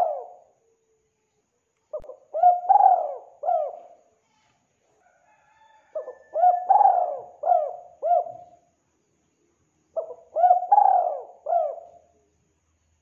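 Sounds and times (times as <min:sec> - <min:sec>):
dove cooing: 0:00.0 - 0:00.5, 0:01.9 - 0:04.0, 0:05.9 - 0:08.6, 0:10.0 - 0:12.1.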